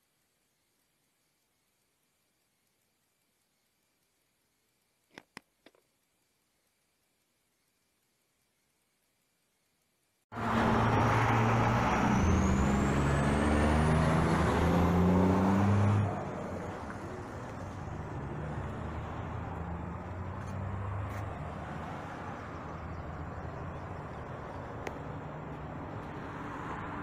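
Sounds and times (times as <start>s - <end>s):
loud vehicle engine running: 10.3s - 27.0s
street traffic noise: 10.3s - 27.0s
thin rising whine: 10.4s - 27.0s.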